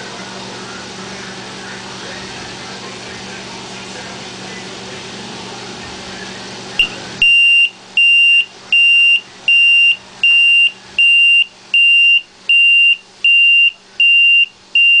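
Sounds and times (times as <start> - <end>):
alarm buzzer beeping: 6.8 - 15.0.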